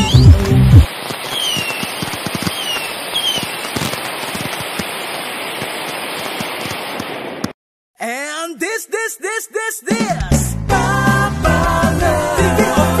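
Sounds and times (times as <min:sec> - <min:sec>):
fireworks falling whistles: 0:00.0 - 0:07.5
fireworks crackling: 0:00.0 - 0:07.6.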